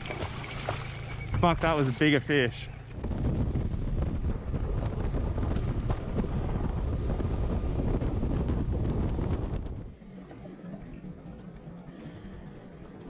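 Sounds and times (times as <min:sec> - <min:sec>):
boat running: 0:00.0 - 0:13.0
wind buffeting microphone: 0:02.6 - 0:10.4.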